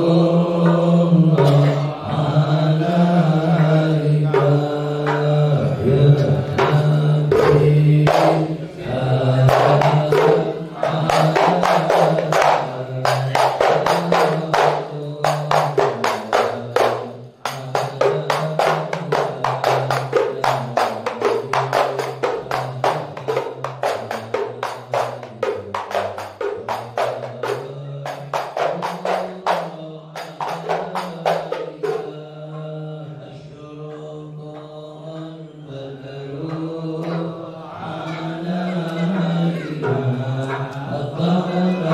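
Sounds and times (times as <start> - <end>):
group of men chanting: 0.0 - 41.9
man singing into a microphone: 0.0 - 41.9
fast hand percussion beat: 3.2 - 32.2, 38.8 - 41.9.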